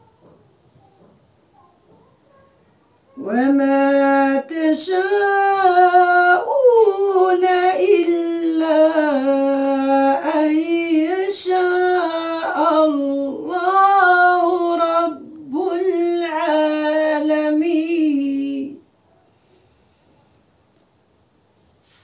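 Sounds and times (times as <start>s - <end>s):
woman chanting melodically: 3.1s - 18.9s.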